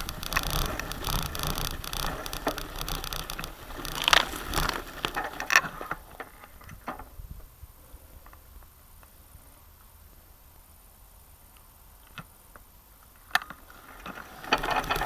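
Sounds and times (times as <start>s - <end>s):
bicycle brushing through dry grass: 0.0s - 6.6s, 13.6s - 15.0s.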